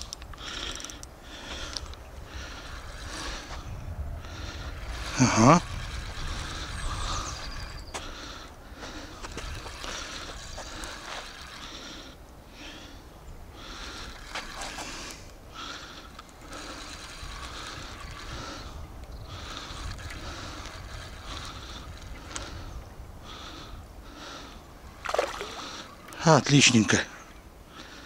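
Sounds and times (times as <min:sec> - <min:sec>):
wind rumble on microphone: 0:01.4 - 0:11.6, 0:16.4 - 0:25.2
spinning reel being cranked: 0:04.8 - 0:07.6, 0:16.1 - 0:22.5.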